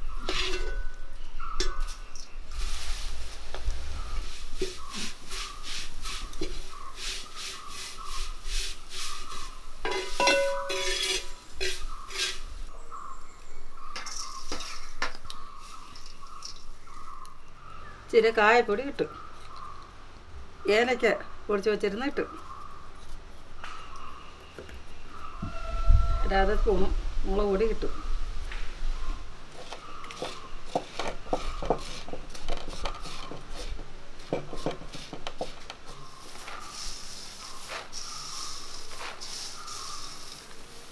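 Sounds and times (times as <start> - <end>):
metal utensils scraping: 0.0 - 2.0, 9.0 - 12.7, 29.6 - 40.2
spoon scraping metal dish: 0.1 - 1.0, 9.8 - 12.5
metal utensils clinking: 0.2 - 1.0, 9.8 - 12.4.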